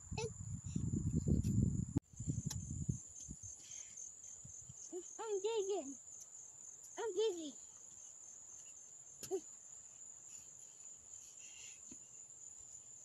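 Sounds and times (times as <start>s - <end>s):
high-pitched insect chorus: 0.1s - 13.0s.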